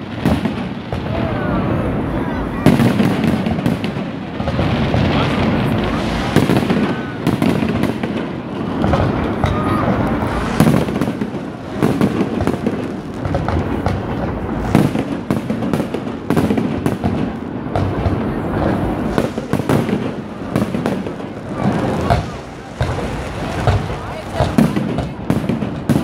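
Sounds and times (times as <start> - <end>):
firework crackling: 0.0 - 26.0
firework shell bursts: 5.9 - 16.8, 19.0 - 25.0.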